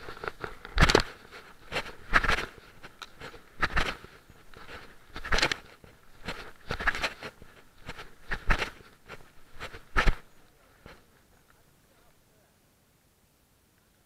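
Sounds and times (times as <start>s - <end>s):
footsteps scuffing and crunching: 0.0s - 11.2s.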